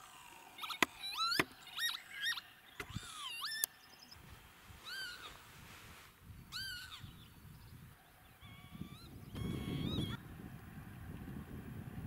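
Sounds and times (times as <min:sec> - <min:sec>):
lapwings calling: 0:00.0 - 0:05.6, 0:06.5 - 0:07.3, 0:08.0 - 0:10.2.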